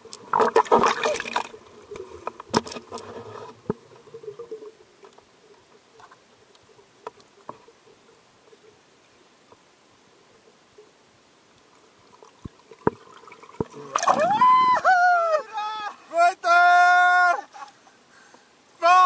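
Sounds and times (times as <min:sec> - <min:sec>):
water sloshing and bubbling: 0:00.0 - 0:14.9
faint steady hum: 0:00.0 - 0:19.0.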